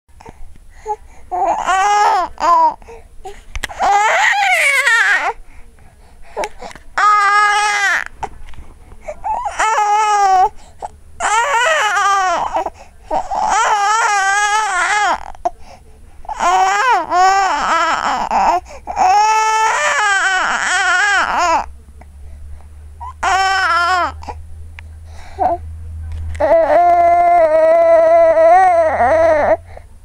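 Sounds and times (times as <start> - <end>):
baby crying: 1.3 - 2.8, 3.7 - 5.4, 6.4 - 8.2, 9.2 - 10.5, 11.2 - 15.4, 16.3 - 21.7, 23.0 - 24.4, 26.4 - 29.7.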